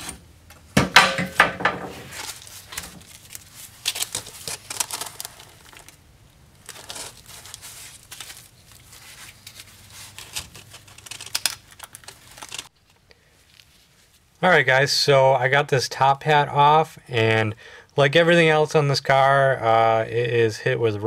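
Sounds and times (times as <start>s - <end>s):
gloved hands handling metal part: 0.1s - 6.0s, 6.6s - 14.2s.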